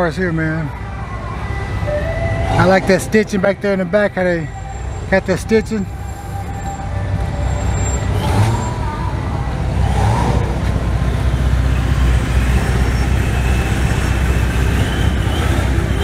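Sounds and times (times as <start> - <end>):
faint voices: 0.0 - 10.8
street traffic rumble: 0.0 - 16.0.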